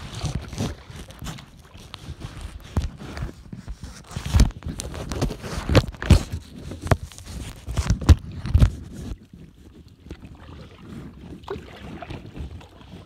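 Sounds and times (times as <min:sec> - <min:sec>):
handling knocks and rustling: 0:00.0 - 0:09.2.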